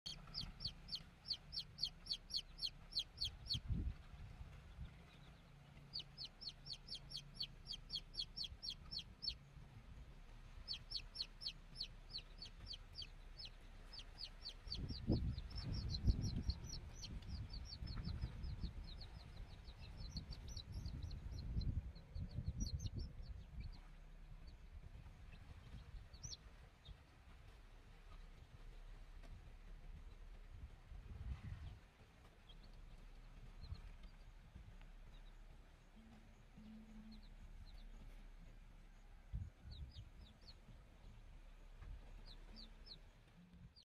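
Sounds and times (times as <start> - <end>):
chick peeping loudly: 0.1 - 4.0, 4.8 - 9.4, 10.6 - 23.8, 25.3 - 26.4
low rumbling noise: 0.1 - 43.8.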